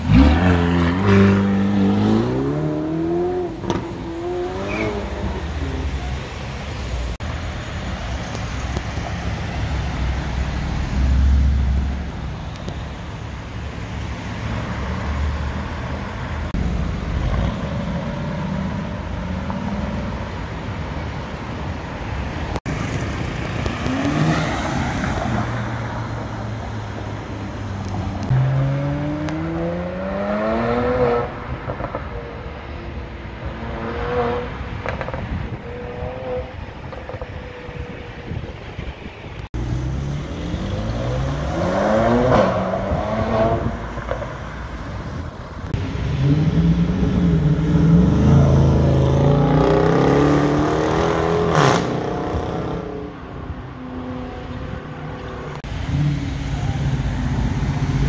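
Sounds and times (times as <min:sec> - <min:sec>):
city traffic: 0:00.0 - 0:58.0
another car accelerating hard: 0:28.2 - 0:32.0, 0:39.6 - 0:44.3.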